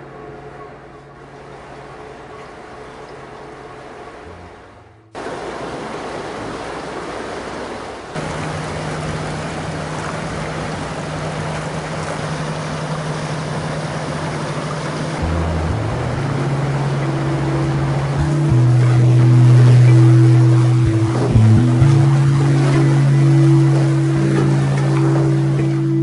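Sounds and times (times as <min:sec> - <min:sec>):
low hum: 0:00.0 - 0:05.6, 0:08.2 - 0:26.0
water rushing through tank: 0:01.2 - 0:26.0
low sustained tones changing pitch: 0:15.2 - 0:26.0.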